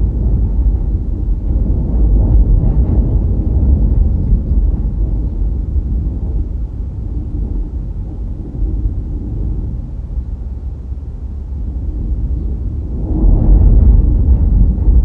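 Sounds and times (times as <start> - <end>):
car driving on road: 3.8 - 14.8.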